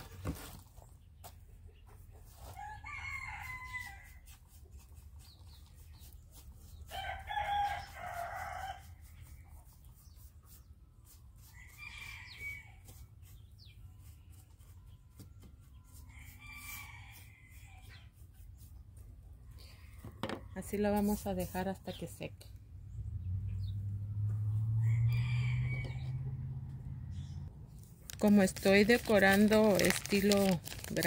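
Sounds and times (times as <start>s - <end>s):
rooster crowing: 2.5s - 4.2s, 6.9s - 8.9s, 24.7s - 26.6s.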